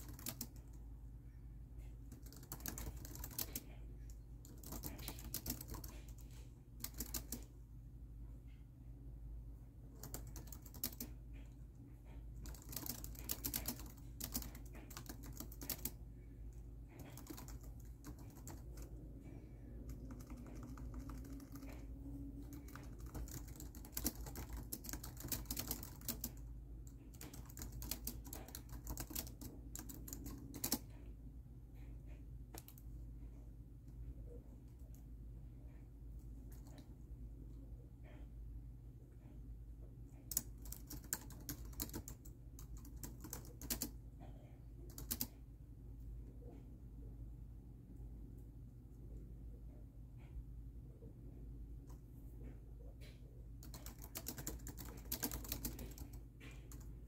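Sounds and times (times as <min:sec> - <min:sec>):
laptop keyboard typing: 0:00.0 - 0:00.8, 0:02.0 - 0:07.5, 0:09.9 - 0:11.2, 0:12.1 - 0:16.0, 0:16.9 - 0:19.0, 0:19.8 - 0:31.0, 0:40.3 - 0:44.0, 0:44.8 - 0:45.4, 0:53.6 - 0:57.0.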